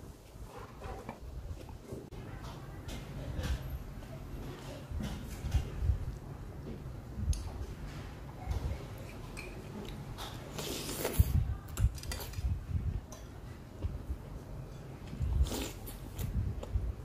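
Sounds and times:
noodle slurp: 0:10.5 - 0:11.4, 0:15.4 - 0:16.4.

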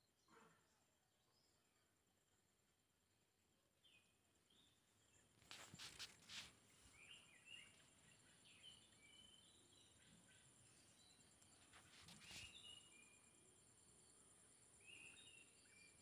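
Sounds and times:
small birds chirping: 0:03.5 - 0:16.0
rustling: 0:05.4 - 0:07.1, 0:11.5 - 0:12.7.

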